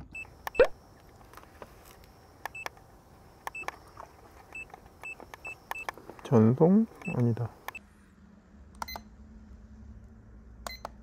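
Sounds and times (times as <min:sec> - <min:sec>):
small clicks: 0:00.0 - 0:06.4, 0:07.0 - 0:07.8.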